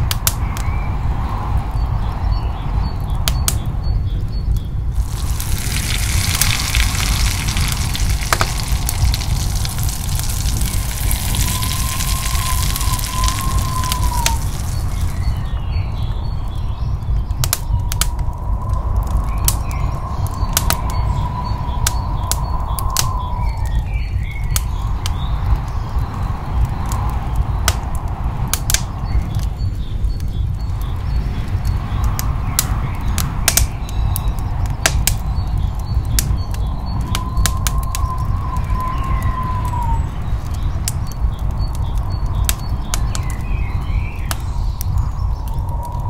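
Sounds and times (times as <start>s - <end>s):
sharp pops of frying: 5.0s - 15.3s
onion sizzling in frying pan: 5.0s - 15.4s.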